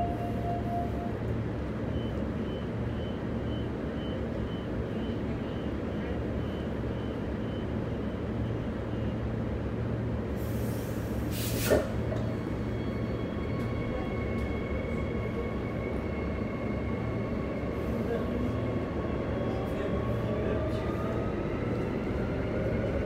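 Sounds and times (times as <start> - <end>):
electric train hum: 0.0 - 23.0
short hiss: 10.5 - 11.9.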